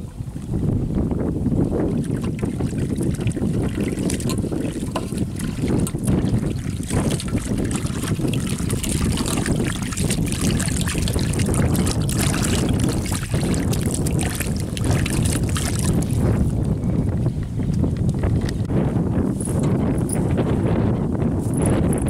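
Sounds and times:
wind buffeting microphone: 0.0s - 22.0s
water sloshing in steel basin: 1.8s - 16.5s.

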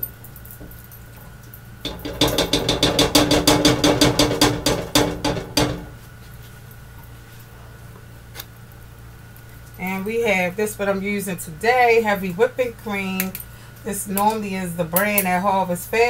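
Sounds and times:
spatula knocking against pan: 1.9s - 6.0s.

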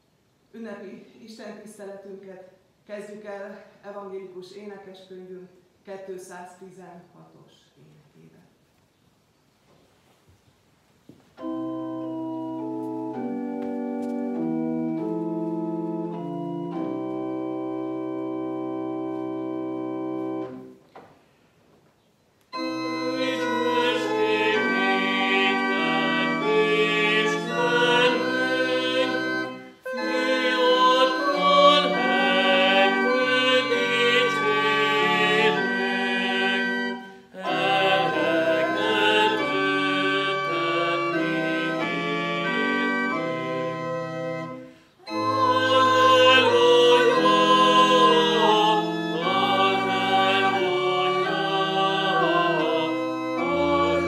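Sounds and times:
organ playing hymn chords: 11.4s - 20.8s, 22.5s - 54.0s
person singing hymn: 22.6s - 54.0s.

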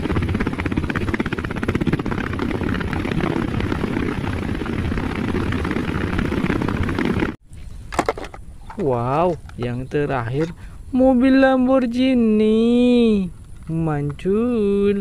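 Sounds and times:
helicopter rotor chop: 0.0s - 7.4s.

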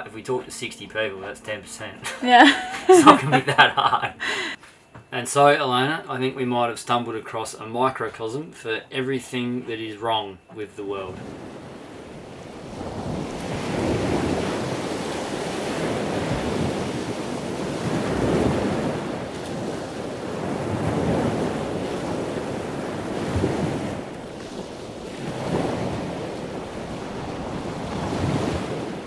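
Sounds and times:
wind buffeting microphone: 11.0s - 29.0s
sea water washing: 11.1s - 29.0s.

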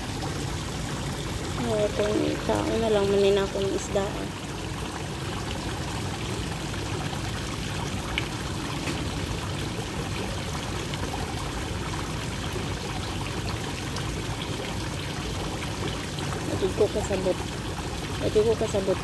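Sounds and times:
water pouring into a pond: 0.0s - 19.0s.

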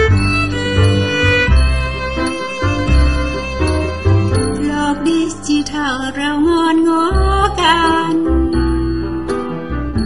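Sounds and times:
instrumental pop music: 0.0s - 10.0s.

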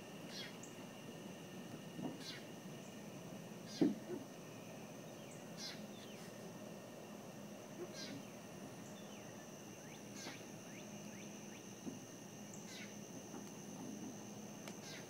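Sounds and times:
high insect trill: 0.0s - 15.0s
bird chirping: 4.6s - 6.3s, 7.8s - 11.6s, 12.5s - 13.0s, 14.8s - 15.0s.

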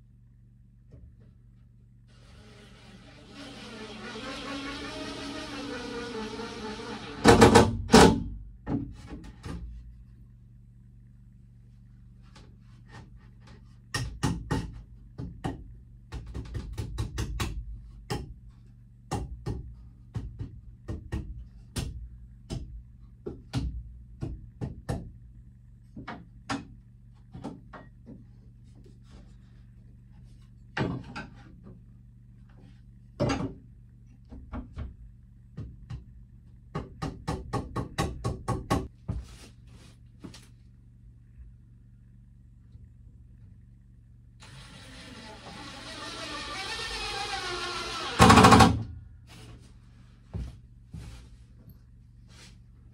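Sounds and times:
low hum: 0.0s - 7.6s, 38.9s - 52.9s.

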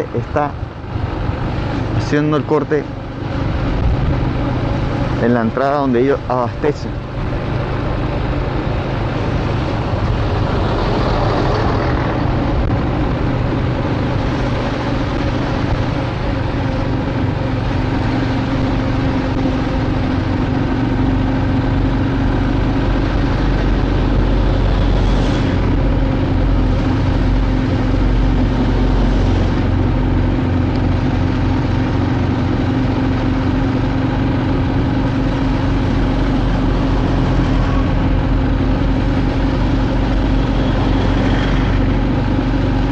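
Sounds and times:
vehicle engine and road noise: 0.0s - 42.9s.

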